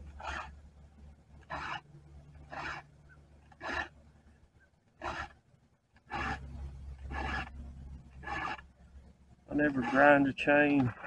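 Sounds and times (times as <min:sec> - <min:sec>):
file rasping on saw chain: 0:01.5 - 0:01.8, 0:02.4 - 0:02.9, 0:03.5 - 0:03.9, 0:05.0 - 0:05.4, 0:06.1 - 0:08.6, 0:09.5 - 0:11.0.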